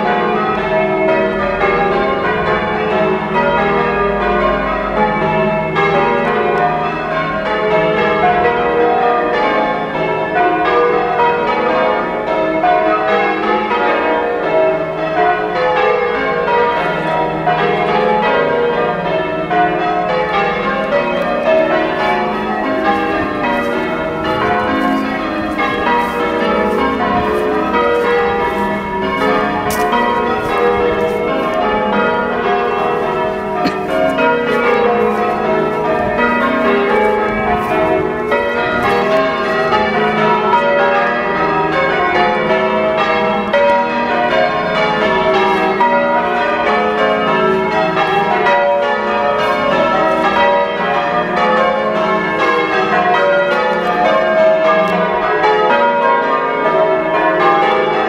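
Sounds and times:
church bells change ringing: 0:00.0 - 0:58.0.

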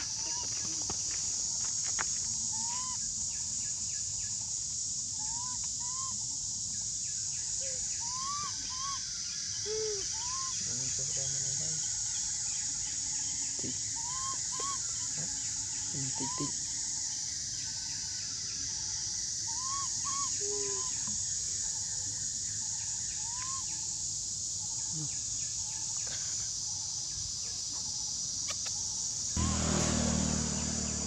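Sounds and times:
high-pitched insect drone: 0:00.0 - 0:31.0
chirp-like animal calls: 0:05.2 - 0:06.3, 0:07.4 - 0:11.2, 0:13.3 - 0:16.7, 0:19.4 - 0:21.2.

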